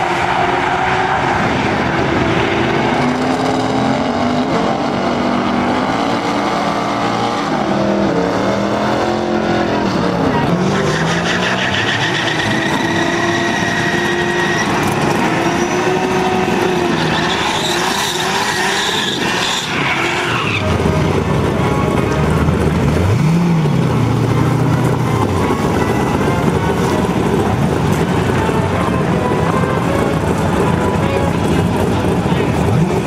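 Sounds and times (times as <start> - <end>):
car engine revving: 0.0 - 33.0
tyres squealing: 10.4 - 21.0.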